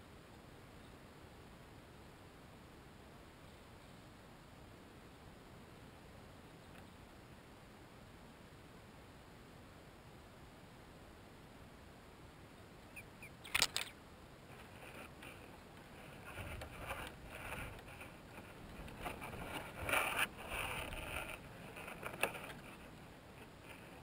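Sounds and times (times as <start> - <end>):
rustling and scraping of dry grass: 13.4 - 24.0.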